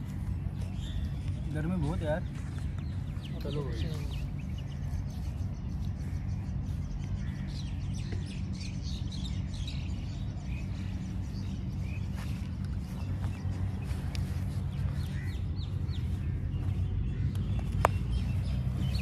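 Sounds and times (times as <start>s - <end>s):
birds chirping: 0.0s - 19.0s
steady low rumble: 0.0s - 19.0s.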